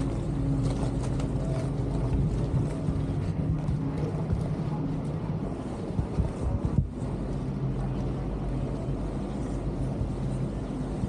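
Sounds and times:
boat engine humming: 0:00.0 - 0:11.0
water rushing along hull: 0:00.0 - 0:11.0
wind buffeting microphone: 0:00.0 - 0:11.0.

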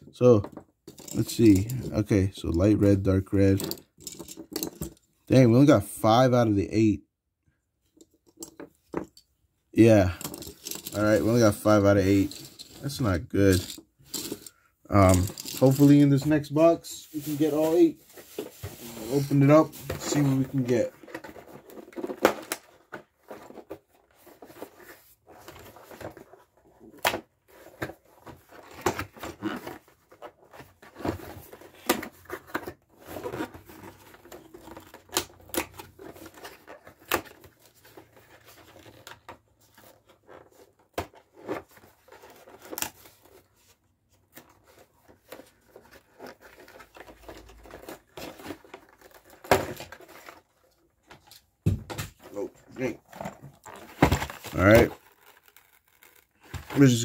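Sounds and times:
cardboard carton tearing: 0:52.8 - 0:57.0.

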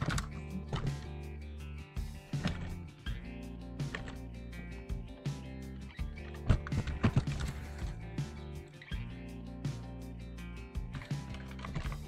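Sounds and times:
music with held chords and beat: 0:00.0 - 0:12.0.

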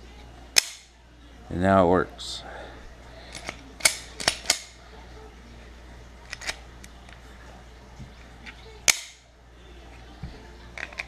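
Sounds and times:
pistol slide metallic clicks: 0:00.6 - 0:00.9, 0:03.3 - 0:04.7, 0:08.9 - 0:09.2.

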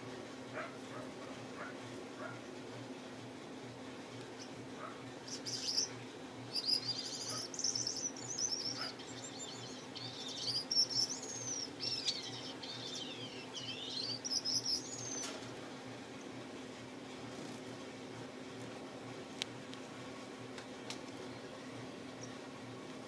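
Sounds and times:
faint low hum: 0:00.0 - 0:23.0
finch singing trills and chirps: 0:05.2 - 0:15.4.

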